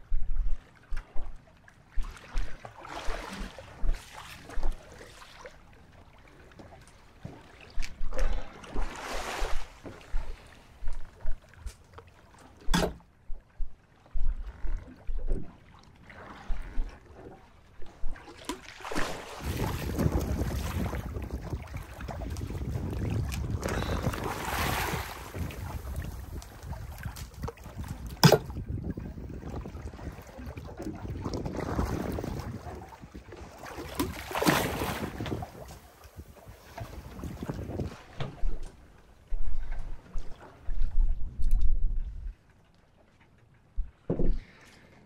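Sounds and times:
water splashing against boat: 0.6 - 45.0
wind buffeting microphone: 19.4 - 42.4.

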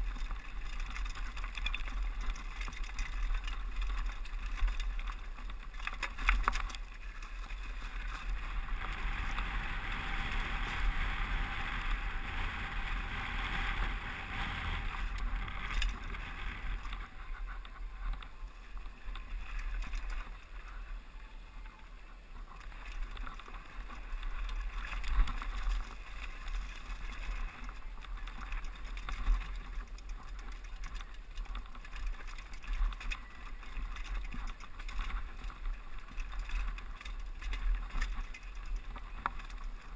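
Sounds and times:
bike knocking and rattling: 0.0 - 20.8, 22.4 - 39.9
wind rushing on microphone: 7.0 - 21.7.

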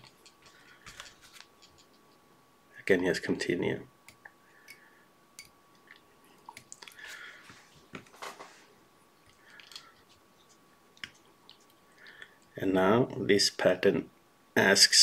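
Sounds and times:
soft rustles of hands handling thread: 0.0 - 2.2, 6.9 - 12.6.

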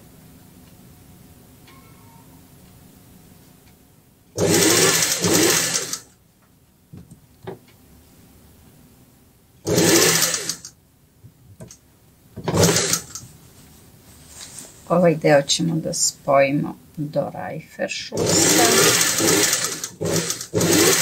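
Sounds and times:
sewing machine stitching: 4.4 - 6.1, 9.7 - 10.7, 12.4 - 13.2, 18.2 - 21.0.

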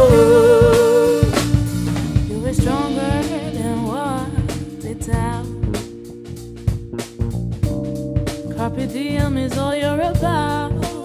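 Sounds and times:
woman singing: 0.0 - 1.5, 2.3 - 5.8, 8.6 - 11.0
soul band playing: 0.0 - 11.0.

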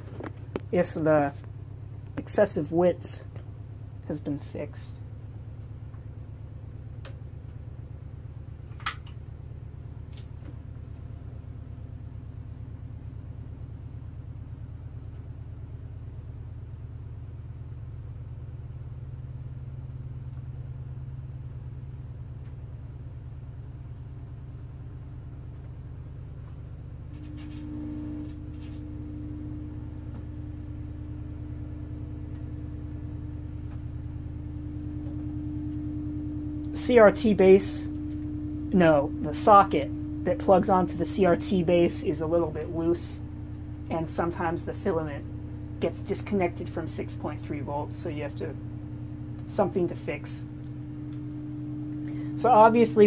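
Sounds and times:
low electrical hum: 0.0 - 53.0
high steady buzz: 26.9 - 53.0.

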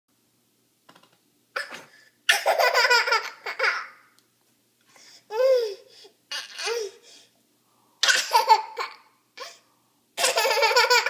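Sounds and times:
toddler laughing: 1.6 - 4.0, 5.3 - 7.0, 8.1 - 9.5, 10.2 - 11.0.

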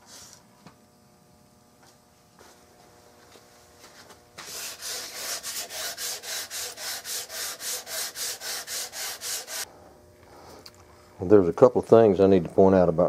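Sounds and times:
sandpaper rasping on wood: 4.4 - 9.7.

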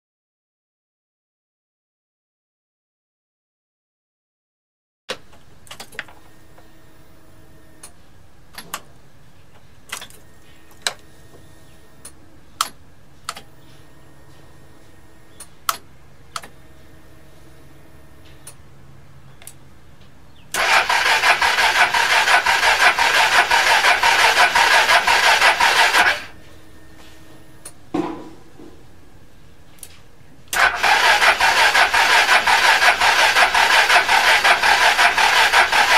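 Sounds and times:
scooter starter cranking engine: 20.5 - 26.4, 30.5 - 35.9.

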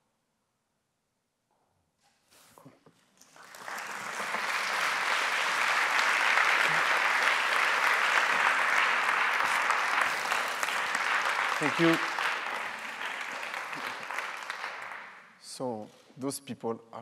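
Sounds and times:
audience applauding: 3.2 - 15.4.

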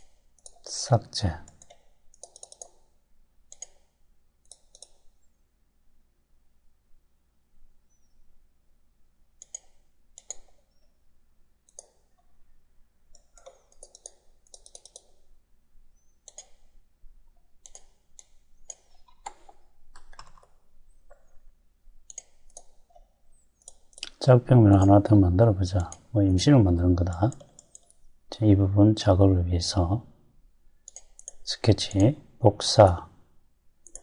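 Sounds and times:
faint computer mouse clicks: 1.5 - 2.8, 3.5 - 5.2, 9.4 - 10.7, 11.7 - 12.0, 16.1 - 16.7, 22.1 - 24.2, 27.1 - 28.1, 30.8 - 31.4.

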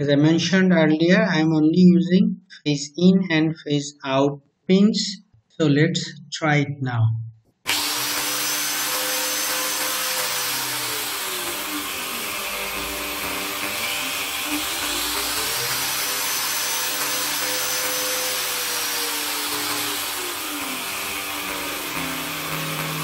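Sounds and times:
angle grinder motor whine: 7.7 - 23.0.

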